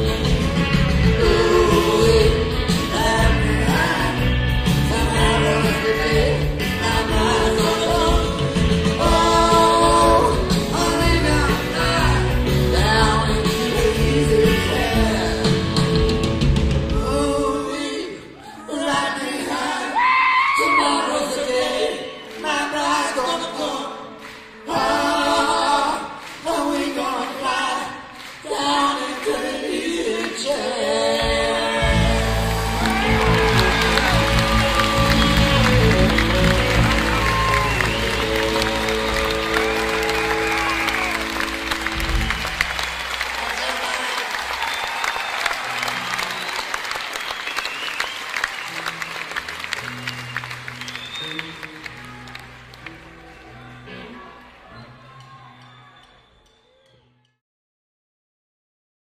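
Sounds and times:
voices singing in harmony: 0.0s - 15.8s, 16.9s - 41.5s
deep bass: 31.8s - 43.0s
crowd applause: 31.8s - 56.2s.

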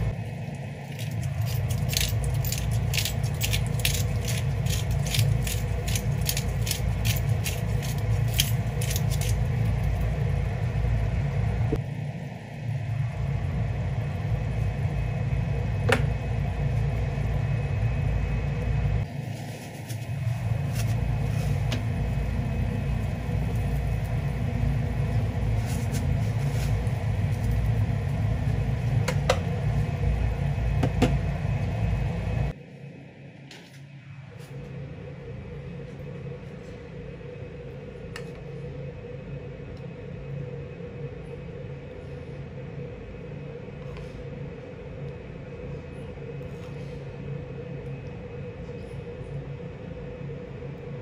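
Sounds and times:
low rumble: 0.0s - 33.4s, 34.0s - 51.0s
steady hum: 0.0s - 51.0s.

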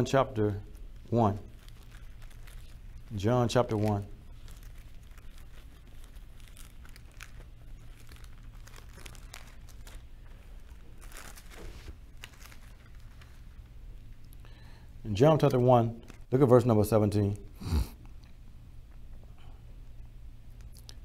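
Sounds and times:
low steady hum: 0.0s - 21.0s
paper pages rustling: 0.7s - 13.7s.

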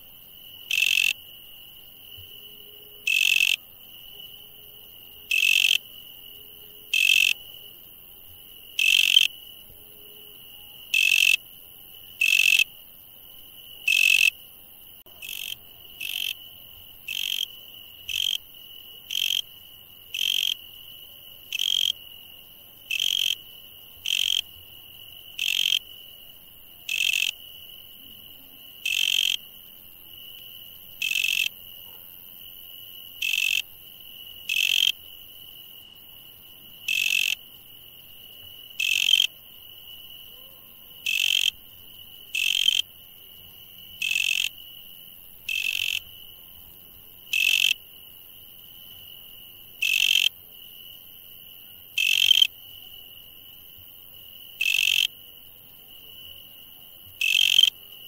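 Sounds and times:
insect chirp: 0.0s - 58.0s
high-pitched insect trill: 0.4s - 14.4s, 32.6s - 46.7s.

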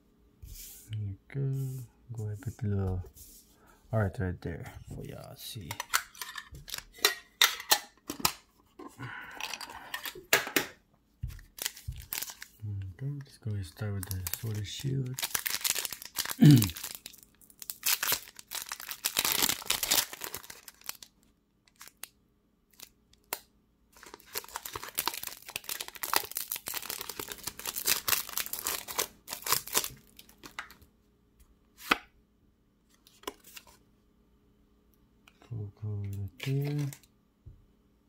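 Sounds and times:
foil wrapper tearing and crinkling: 11.4s - 12.6s, 14.0s - 21.1s, 21.7s - 22.1s, 24.0s - 30.8s.

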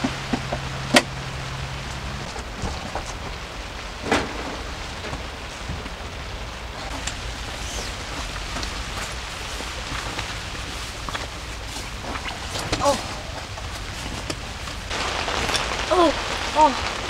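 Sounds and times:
heavy rain on tent fabric: 0.0s - 17.0s.

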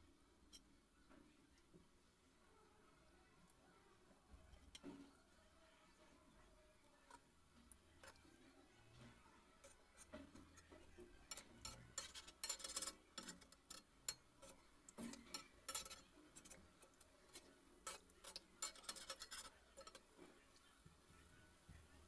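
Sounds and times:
metal skimmer clinking on pan: 9.6s - 20.1s
food deep-frying in hot oil: 9.6s - 22.0s.

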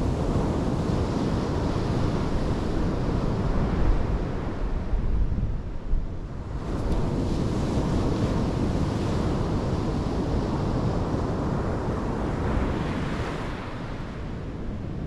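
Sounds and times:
wind rumbling on microphone: 0.0s - 15.0s
surf breaking on a beach: 6.4s - 15.0s.

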